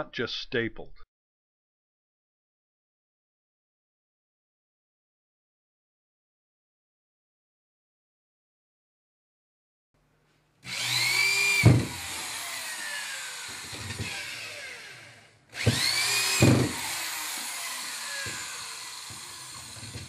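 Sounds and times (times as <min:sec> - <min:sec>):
power drill spinning: 0:10.6 - 0:20.0
sharp knock: 0:15.6 - 0:16.8.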